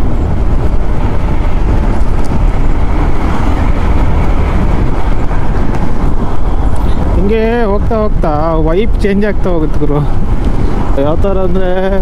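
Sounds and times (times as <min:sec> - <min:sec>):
wind noise on microphone: 0:00.0 - 0:12.0.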